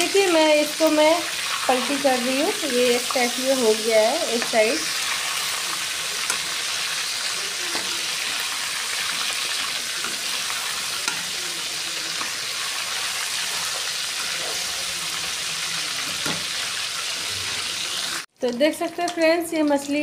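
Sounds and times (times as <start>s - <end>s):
fish sizzling in hot oil: 0.0s - 20.0s
metal spatula clicking on pan: 11.0s - 11.2s.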